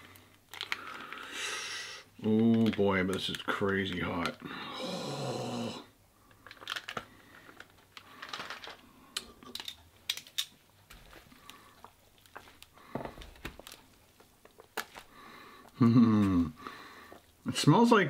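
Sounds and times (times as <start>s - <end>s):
plastic packet crinkling: 0.0s - 1.3s, 2.2s - 4.5s, 6.2s - 15.2s
tongs clicking and scraping: 9.2s - 10.5s.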